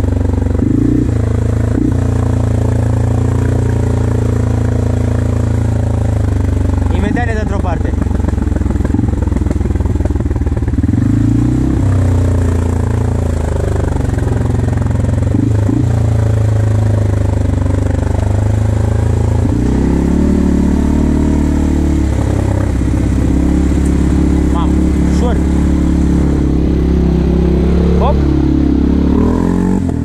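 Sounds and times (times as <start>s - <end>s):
atv engine running: 0.0s - 30.0s.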